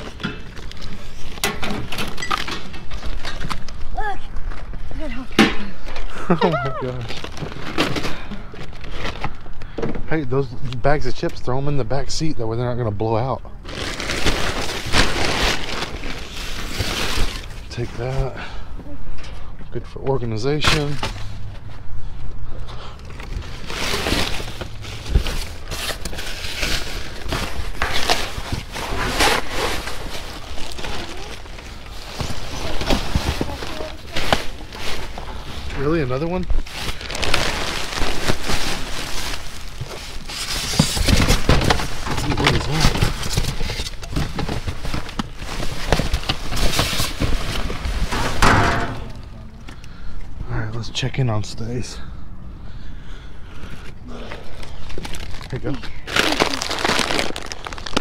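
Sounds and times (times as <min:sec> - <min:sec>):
bags rustling and scraping: 0:00.0 - 0:05.2, 0:13.1 - 0:18.3, 0:22.8 - 0:49.6, 0:53.8 - 0:58.0
heavy thump: 0:48.1 - 0:49.3.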